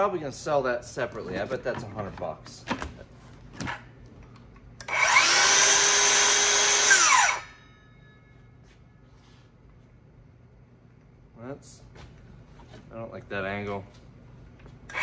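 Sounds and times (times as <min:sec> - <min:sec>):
circular saw motor whining: 0:04.8 - 0:07.6.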